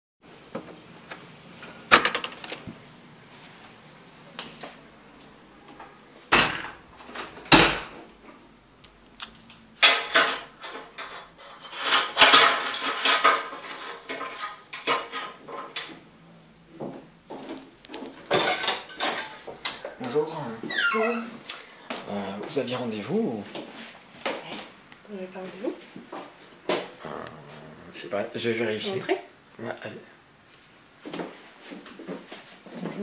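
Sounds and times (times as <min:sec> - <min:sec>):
metal clatter: 0:09.8 - 0:15.9.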